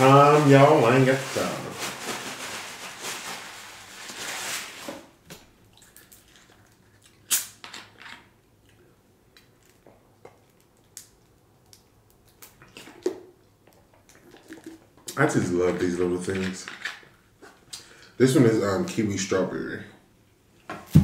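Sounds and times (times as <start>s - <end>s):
paper napkin rustling: 0.0s - 5.2s
bottle cap cracking open: 7.3s - 7.9s.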